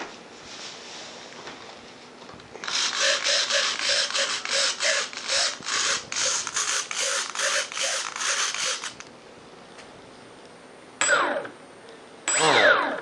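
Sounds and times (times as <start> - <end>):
servos whirring: 2.6 - 9.1.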